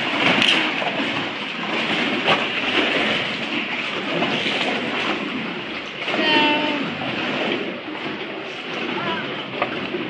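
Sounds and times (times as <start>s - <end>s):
waves sloshing against rock: 0.0s - 10.0s.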